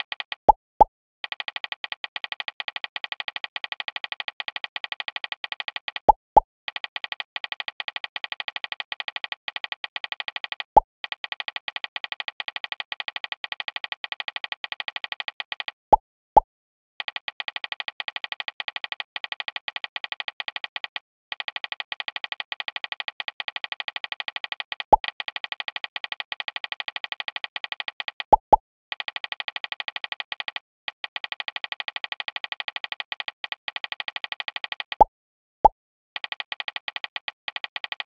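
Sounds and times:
phone keyboard ticking: 28.2s - 28.6s.

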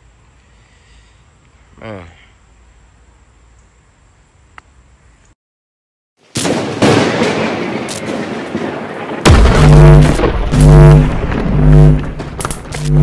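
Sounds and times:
faint outdoor ambience: 0.0s - 5.4s
explosion blast with rumbling rush: 6.5s - 13.0s.

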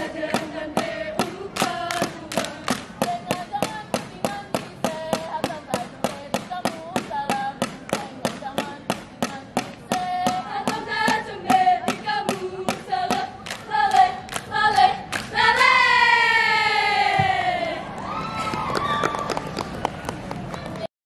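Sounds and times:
hand claps and body slaps: 1.2s - 5.2s, 12.7s - 15.7s.

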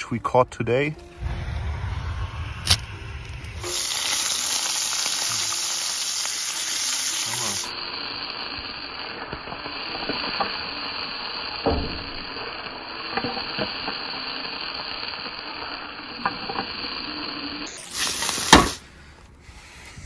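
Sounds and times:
loud thump: 1.2s - 3.8s
food sizzling in oil: 2.1s - 18.8s.

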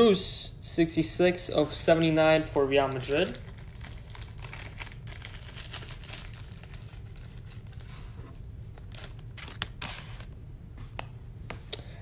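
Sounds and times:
plastic sleeve rustling and crinkling: 1.6s - 11.0s.

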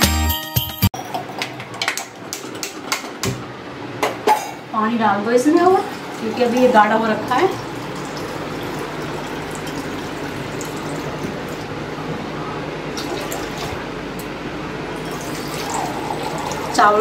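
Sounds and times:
water filling steel tumbler: 5.5s - 11.8s, 15.0s - 17.0s.

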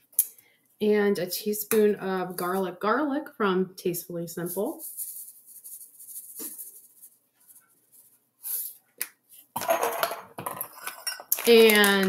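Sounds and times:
spice jar shaking: 4.7s - 7.1s.

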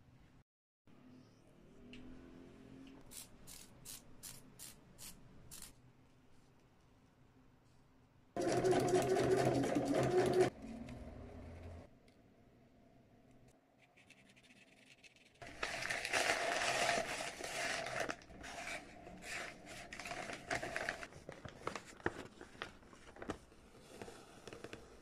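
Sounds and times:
plastic bags and paper crinkling: 15.4s - 23.6s.

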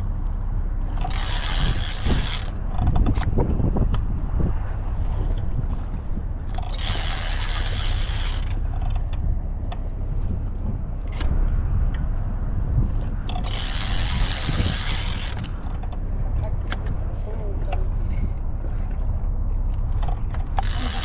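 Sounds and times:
wind rumble on microphone: 0.0s - 21.0s
fishing reel whirring: 1.0s - 2.6s, 6.6s - 8.6s, 13.3s - 15.6s, 20.5s - 21.0s.

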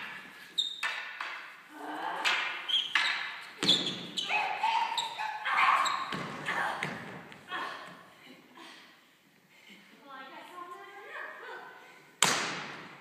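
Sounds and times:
wooden staffs clacking: 0.0s - 1.6s, 2.2s - 3.6s.

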